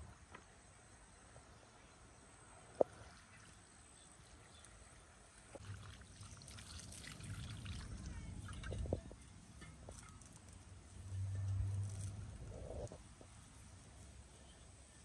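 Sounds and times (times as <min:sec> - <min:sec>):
water splashing onto chicken: 0:05.6 - 0:08.8.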